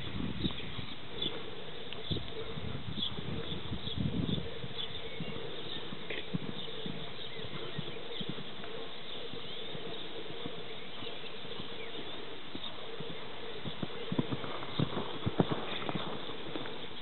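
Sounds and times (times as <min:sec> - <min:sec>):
horse hooves on sand: 0:00.0 - 0:17.0
outdoor background noise: 0:00.0 - 0:17.0
bird chirps: 0:00.4 - 0:17.0.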